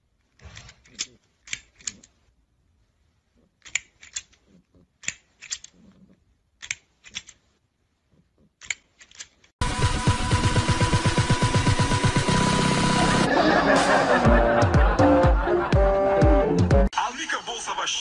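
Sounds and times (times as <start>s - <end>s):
plastic toy jaws clacking: 0.2s - 2.2s, 3.4s - 7.5s, 8.2s - 9.5s.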